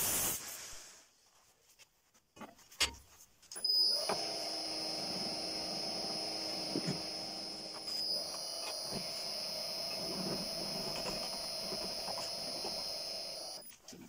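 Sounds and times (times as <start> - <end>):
electric drive whine and hum: 3.6 - 13.7.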